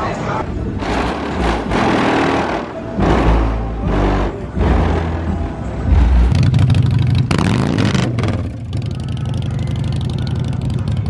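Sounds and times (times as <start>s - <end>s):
car engine revving: 0.5s - 9.0s.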